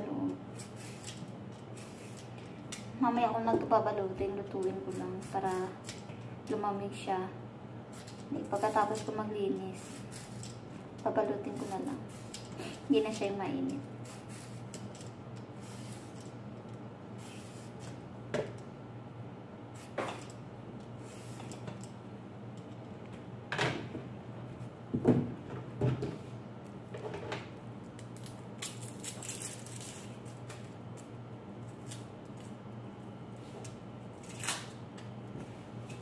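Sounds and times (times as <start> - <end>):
peeler scraping carrot: 8.4 - 10.6, 11.3 - 12.4, 14.0 - 14.9.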